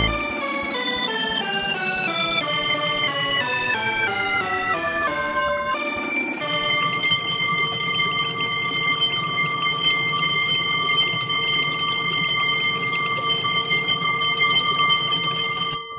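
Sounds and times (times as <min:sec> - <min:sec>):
twin-bell alarm clock ringing: 0:00.0 - 0:02.6, 0:05.8 - 0:15.9.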